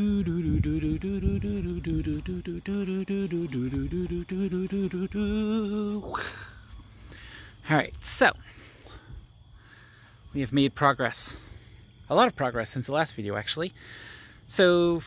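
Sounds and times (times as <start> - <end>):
person imitating chicken clucks: 5.9 - 6.7.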